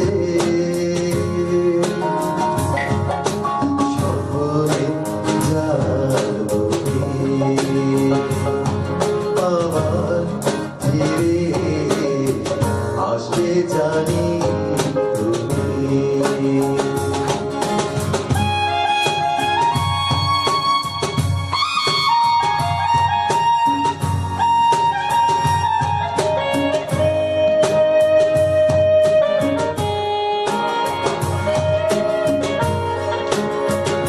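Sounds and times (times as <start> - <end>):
person singing: 0.0 - 2.8, 3.4 - 17.5
instrumental backing with beat: 0.0 - 34.0.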